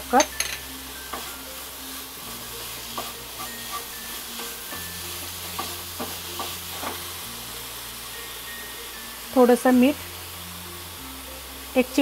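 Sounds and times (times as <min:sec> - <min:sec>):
soft sizzle: 0:00.0 - 0:12.0
spatula scraping a pan: 0:02.3 - 0:07.2.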